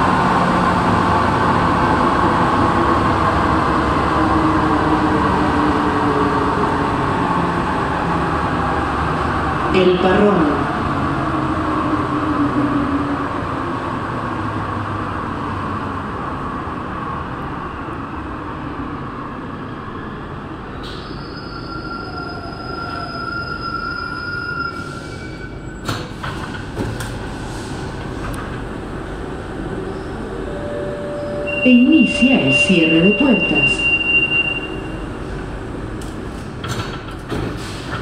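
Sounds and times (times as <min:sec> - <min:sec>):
train running noise: 0:24.7 - 0:38.0.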